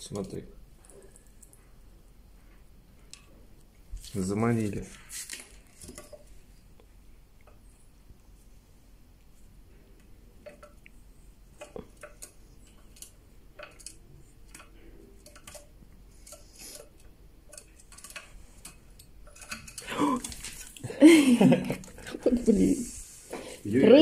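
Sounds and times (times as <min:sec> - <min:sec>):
squirrel handling nuts clicks: 0:10.4 - 0:20.8.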